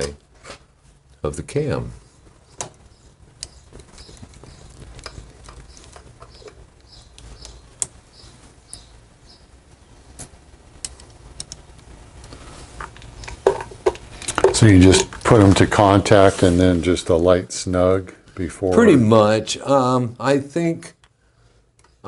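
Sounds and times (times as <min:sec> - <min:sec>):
small regular ticks: 0:02.1 - 0:15.3.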